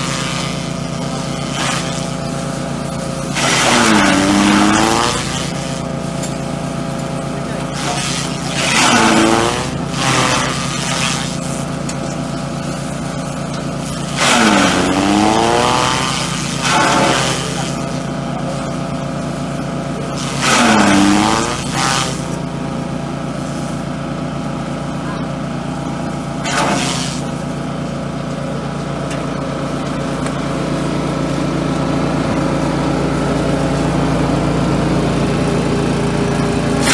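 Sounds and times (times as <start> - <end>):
chaff cutter engine running: 0.0 - 36.9
stalks being chopped: 26.4 - 27.2.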